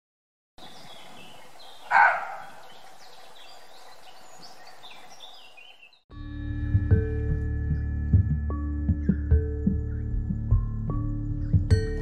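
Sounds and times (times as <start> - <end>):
birdsong with high chirps: 0.6 - 6.1, 8.8 - 12.0
deer barking: 1.8 - 2.7.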